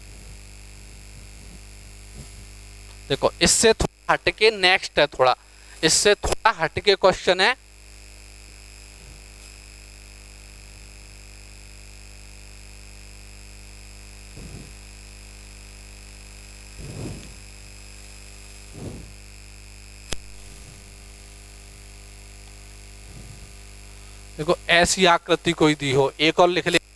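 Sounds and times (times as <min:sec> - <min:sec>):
electrical mains hum: 0:00.0 - 0:26.9
soft low sounds: 0:14.4 - 0:14.8, 0:18.7 - 0:19.2.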